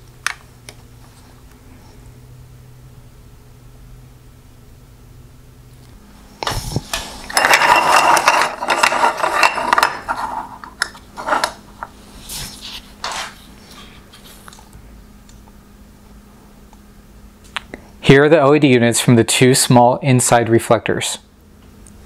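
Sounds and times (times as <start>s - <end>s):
sheet metal clattering and scraping: 7.3s - 10.5s.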